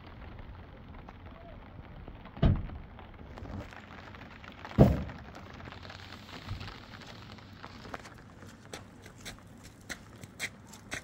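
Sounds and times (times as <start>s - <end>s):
heavy thump: 4.8s - 5.2s.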